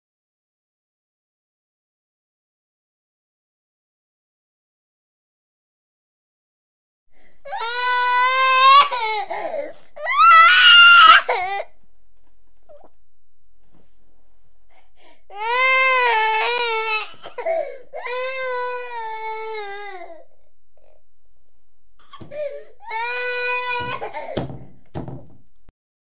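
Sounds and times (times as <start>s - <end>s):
baby crying: 7.5s - 11.7s, 15.3s - 20.4s, 22.0s - 24.4s.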